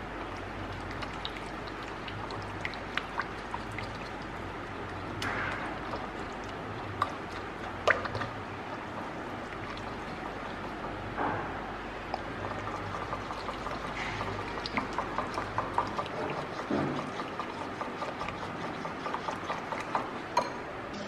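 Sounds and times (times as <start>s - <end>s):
whisk swishing through sauce: 0.6s - 11.2s, 12.2s - 20.4s
whisk clicking against bowl: 12.2s - 20.5s.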